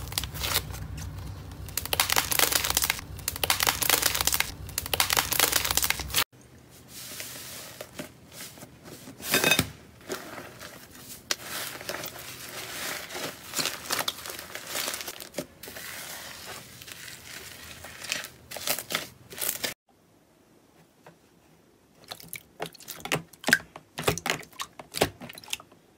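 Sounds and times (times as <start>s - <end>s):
slime crackling and tearing: 0.0s - 6.2s, 11.3s - 19.8s
slime squeezed crunchy crackle: 0.0s - 6.2s.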